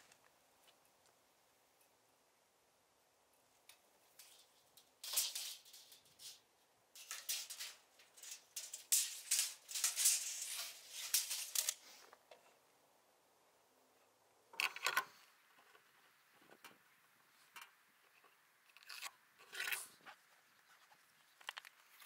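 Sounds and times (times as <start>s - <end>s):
tape measure rattling and clicking: 4.2s - 6.4s, 7.0s - 11.8s.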